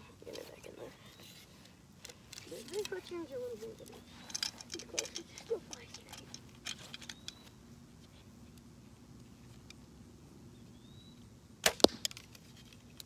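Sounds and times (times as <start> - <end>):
bow shot crack: 11.6 - 12.3.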